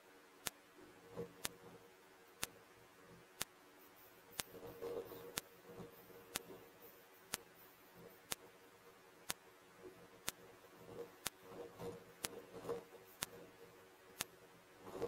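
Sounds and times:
soft rustling: 1.0s - 15.0s
faint sharp ticks: 7.3s - 7.5s, 9.2s - 9.4s, 13.2s - 13.4s.

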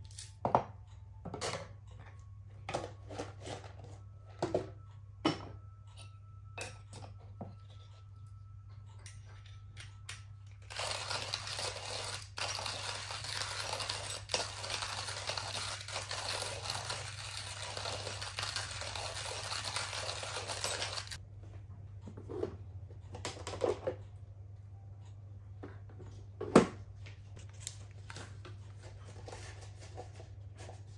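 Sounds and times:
low steady hum: 0.0s - 14.9s, 20.5s - 30.9s
coffee grinder grinding beans: 10.6s - 21.2s.

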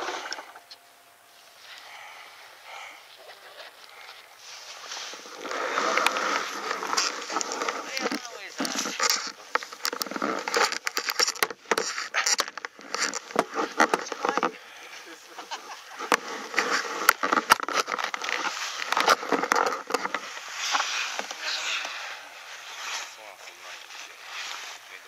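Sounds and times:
sharp clicks and crackles: 5.3s - 14.5s, 15.4s - 22.0s.

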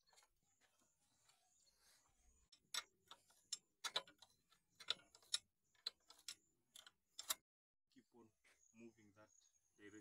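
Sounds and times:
spanner clicking on metal bolts: 2.6s - 7.4s.

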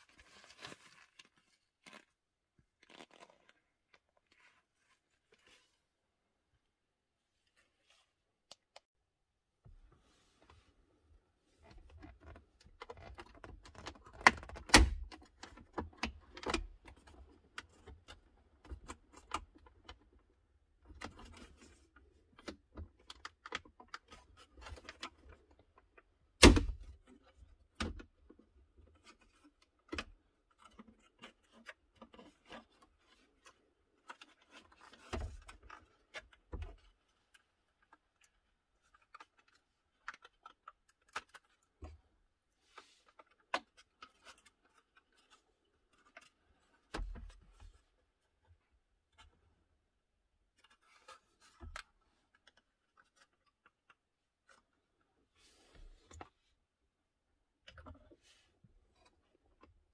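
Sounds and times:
plastic knocks and rattles: 11.7s - 20.2s.

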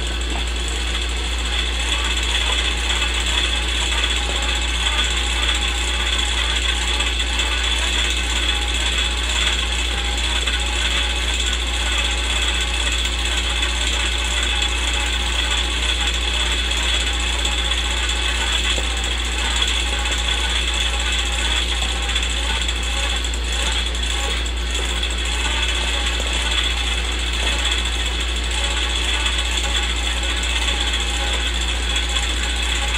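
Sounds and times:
low hum: 0.0s - 11.2s
film projector clatter: 0.0s - 32.9s.

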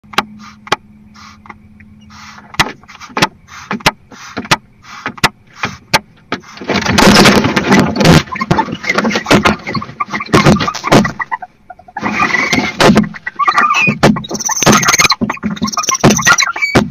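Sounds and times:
harsh owl calling: 0.3s - 5.8s, 9.6s - 16.9s
owls hissing: 0.3s - 6.7s, 8.2s - 16.9s.

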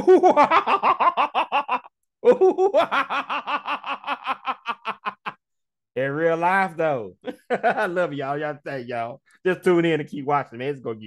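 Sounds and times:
man laughing: 0.0s - 5.4s, 7.2s - 8.2s.

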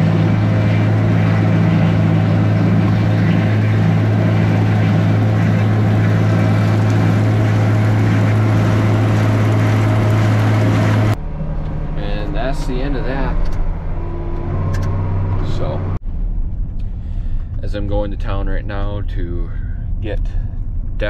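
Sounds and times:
manure spreader clatter and whir: 0.0s - 11.2s
tractor engine droning: 0.0s - 21.0s.

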